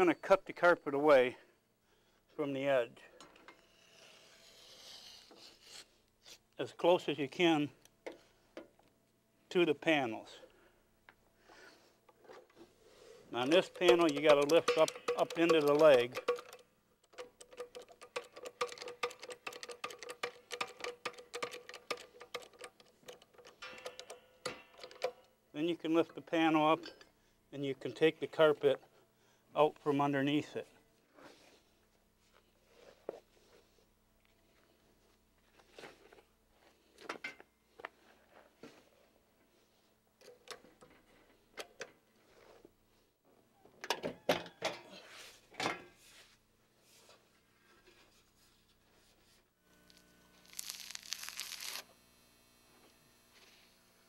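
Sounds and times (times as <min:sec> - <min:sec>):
metal tool knocking and scraping: 0:13.4 - 0:25.2
lift pump clicking: 0:13.5 - 0:25.2.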